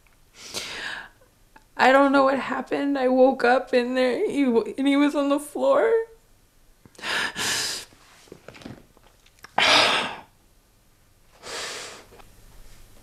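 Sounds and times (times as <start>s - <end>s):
woman breathing hard: 0.4s - 1.2s, 7.0s - 7.9s, 11.4s - 12.1s.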